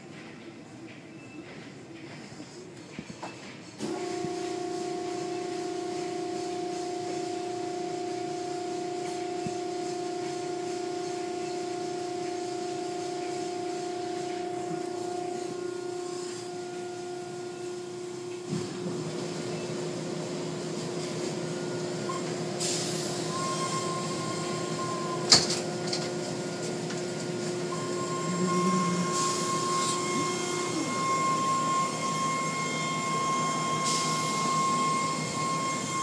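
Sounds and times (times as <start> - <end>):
motor whine and hum: 3.8 - 36.0
hissing spray: 26.3 - 32.7.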